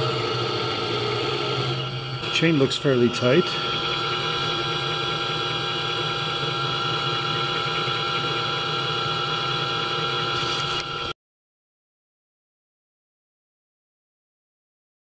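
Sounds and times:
electric motor humming and whining: 0:00.0 - 0:11.1.

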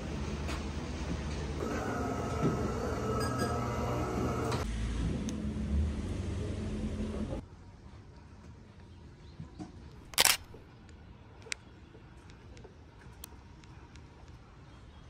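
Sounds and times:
indoor room hum: 0:00.0 - 0:07.4
quiet outdoor ambience: 0:04.6 - 0:15.0.

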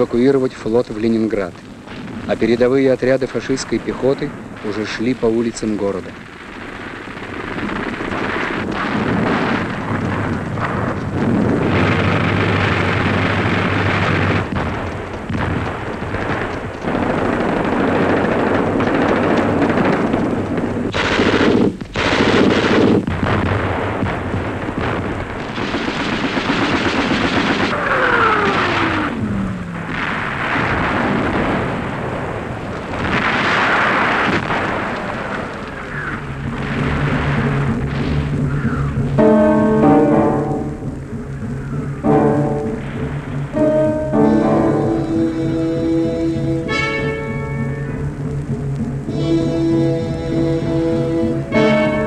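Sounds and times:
heavy booms: 0:00.0 - 0:52.0
machine-gun and rifle fire: 0:01.9 - 0:41.0.

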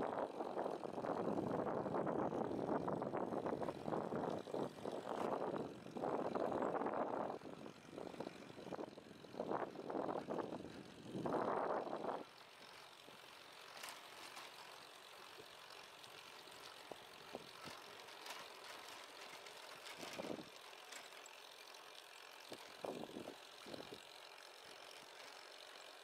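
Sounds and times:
light clicks and rattles: 0:08.0 - 0:26.0
bicycle tyres hissing on pavement: 0:11.9 - 0:26.0.

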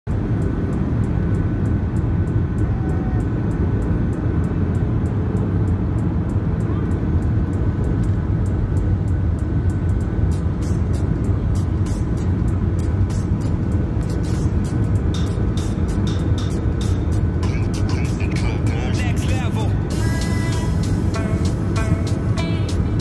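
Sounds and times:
faint steady whine: 0:00.1 - 0:23.0
low rumble of jet engines: 0:00.1 - 0:23.0
air rushing: 0:03.2 - 0:23.0.

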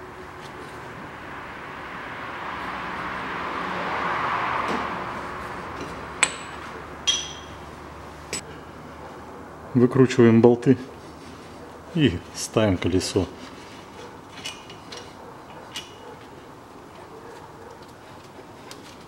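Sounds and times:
wrench clinking on metal bolts: 0:14.3 - 0:16.1.

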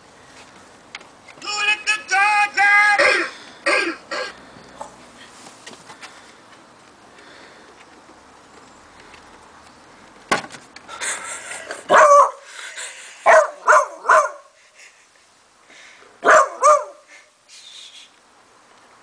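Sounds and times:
puppy barking: 0:11.9 - 0:12.4, 0:13.2 - 0:14.5, 0:16.2 - 0:17.1.

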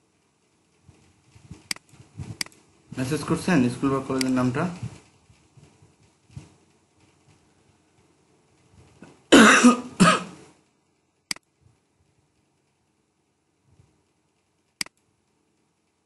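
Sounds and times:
computer mouse clicks: 0:01.6 - 0:02.6, 0:14.4 - 0:15.0
person coughing: 0:09.3 - 0:10.4.

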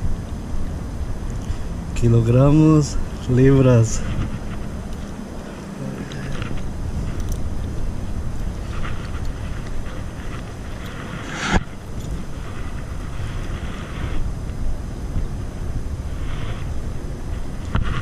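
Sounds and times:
wind buffeting microphone: 0:00.0 - 0:05.6, 0:06.3 - 0:18.0.

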